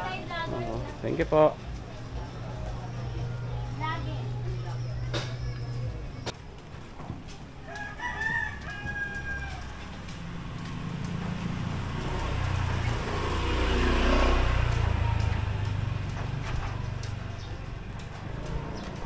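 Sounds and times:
vehicle engine passing: 0.0 - 6.3, 9.3 - 19.0
rooster crowing: 7.6 - 9.9.

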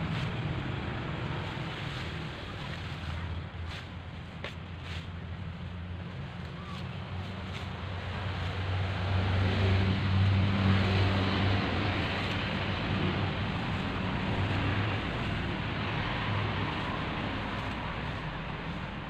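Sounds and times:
steady outdoor hiss: 0.0 - 19.0
distant vehicle engine passing: 5.8 - 19.0.

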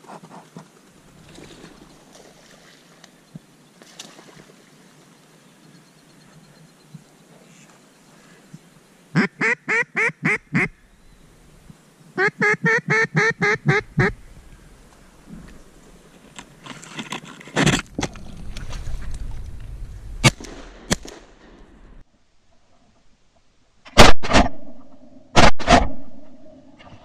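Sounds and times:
duck quacking: 9.2 - 10.8, 12.2 - 14.2
rustling noise: 14.4 - 20.2.

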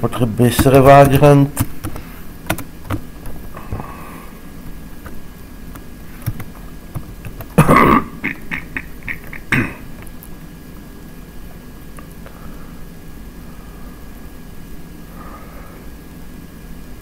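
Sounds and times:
computer keyboard clicks: 0.6 - 3.4, 5.0 - 7.6
man coughing: 7.5 - 9.9.

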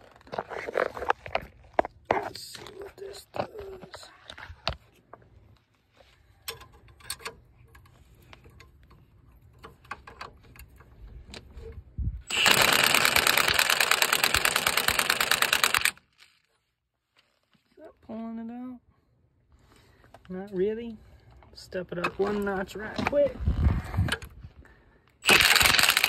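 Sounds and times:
tools clicking and knocking: 6.4 - 11.5.

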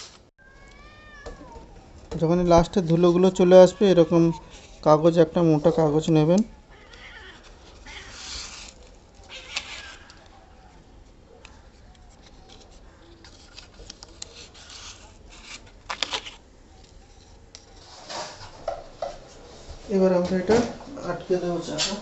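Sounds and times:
paper scraping along metal track: 6.9 - 10.3, 12.1 - 16.4, 17.0 - 18.7.

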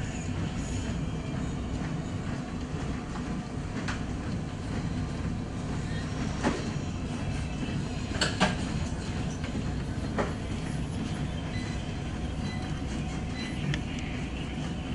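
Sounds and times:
gym cardio machines rumbling: 0.0 - 14.9.

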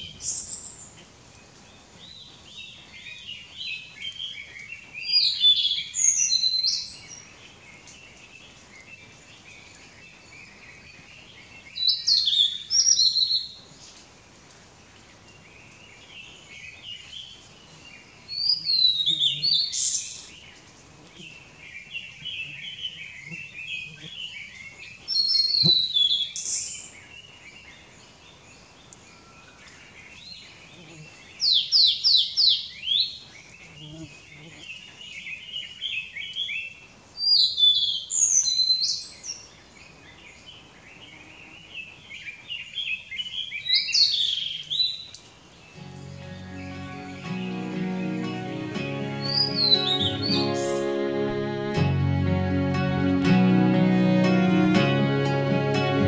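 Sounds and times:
bird singing high whistled notes: 5.0 - 7.3, 18.3 - 20.4, 49.2 - 51.4
other birds twittering: 15.7 - 27.0, 49.1 - 51.0.

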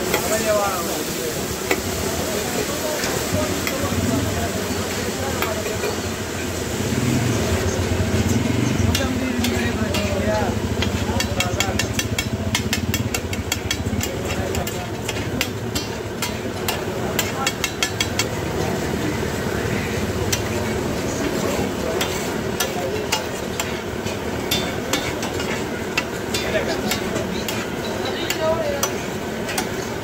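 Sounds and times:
food sizzling: 0.0 - 30.0
metal spatula scraping griddle: 19.6 - 30.0.

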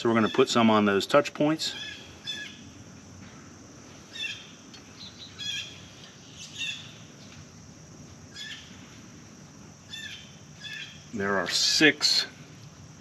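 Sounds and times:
faint low background noise: 0.0 - 13.0
bird chirping: 1.7 - 2.8, 4.0 - 7.4, 8.3 - 8.8, 9.8 - 11.1.

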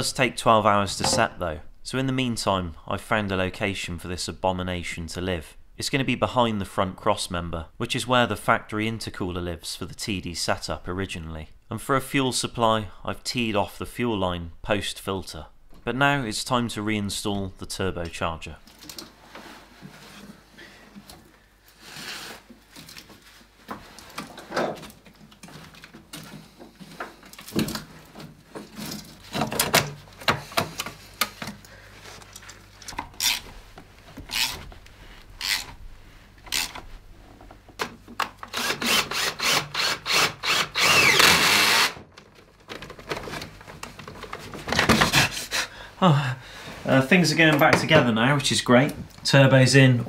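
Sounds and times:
cordless power tool rattling: 38.4 - 43.2.

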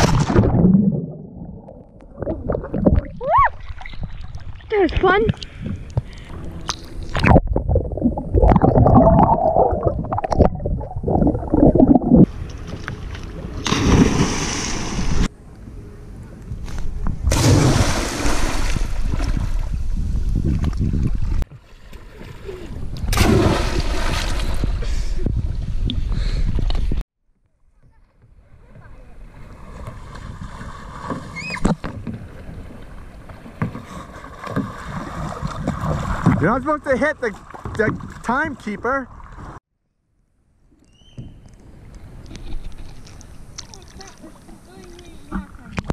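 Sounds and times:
water lapping and paddle splashes: 1.6 - 7.4, 11.2 - 15.3, 17.3 - 25.4, 28.0 - 39.6, 41.7 - 45.9
muffled underwater gurgling: 7.2 - 12.3.

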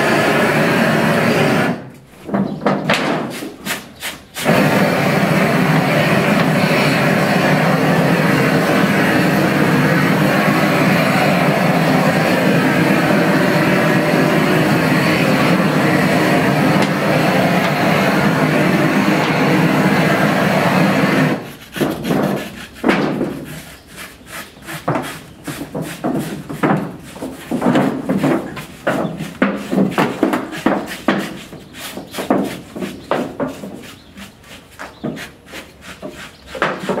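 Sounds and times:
propane torch burning: 0.0 - 2.0, 3.3 - 21.5.

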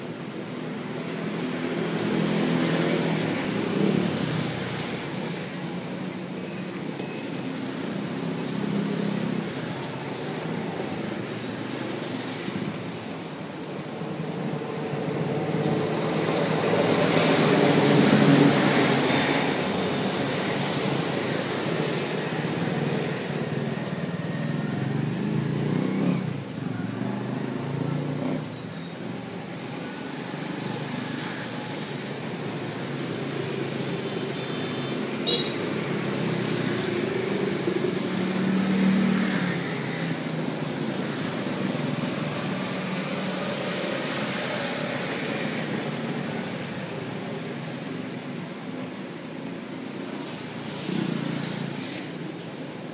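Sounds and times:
road traffic with vehicles passing: 0.0 - 52.9.

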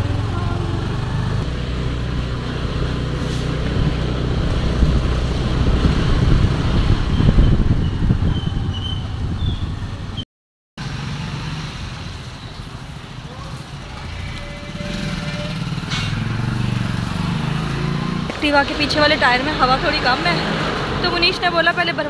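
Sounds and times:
scooter engine: 0.0 - 10.2, 10.8 - 22.0
wind rumbling on microphone: 0.8 - 10.2.

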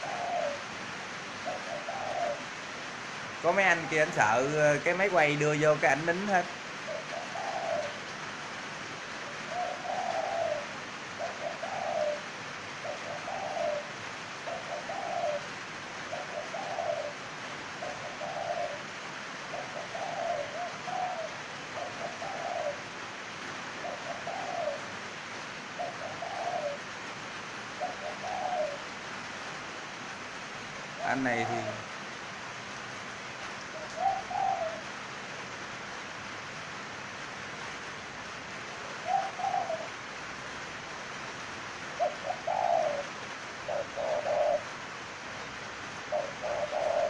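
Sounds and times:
dove cooing: 0.0 - 8.2, 9.0 - 29.4, 30.9 - 32.0, 33.6 - 34.9, 38.7 - 40.2, 41.8 - 45.3, 45.9 - 47.0
background hiss: 0.0 - 47.0.

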